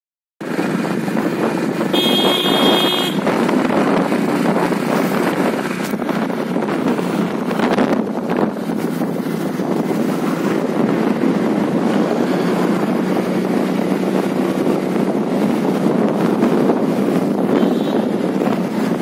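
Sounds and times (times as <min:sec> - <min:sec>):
wind buffeting microphone: 0:00.4 - 0:02.0, 0:02.8 - 0:19.0
motorbike riding at speed: 0:00.4 - 0:19.0.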